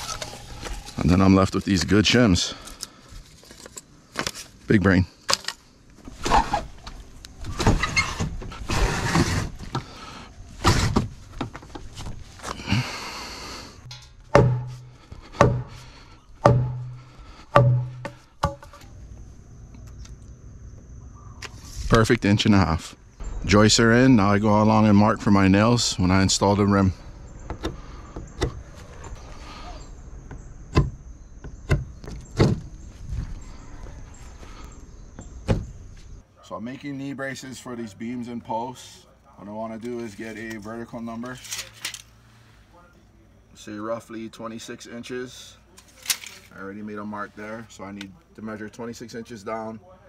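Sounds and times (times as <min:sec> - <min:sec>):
wooden joists scraping and sliding: 0:00.0 - 0:02.0, 0:05.4 - 0:18.8
hard knocks on wooden joist: 0:14.3 - 0:15.8, 0:16.4 - 0:18.7.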